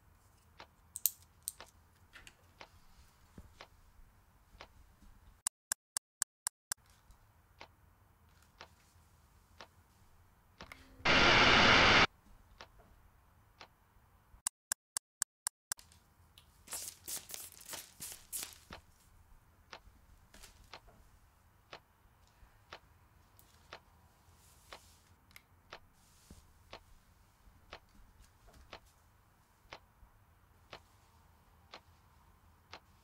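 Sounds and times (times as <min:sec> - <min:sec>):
steady hiss: 0:11.1 - 0:12.1.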